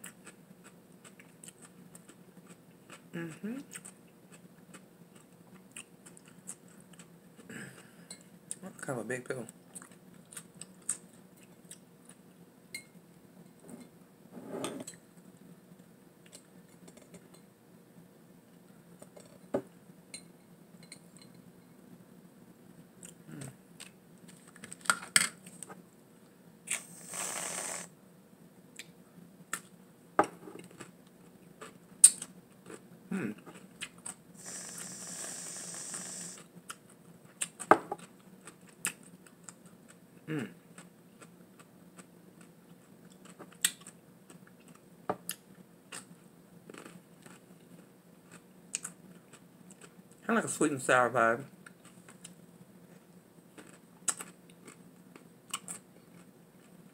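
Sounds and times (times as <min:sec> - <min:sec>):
whipped cream can spraying: 0:26.8 - 0:27.9.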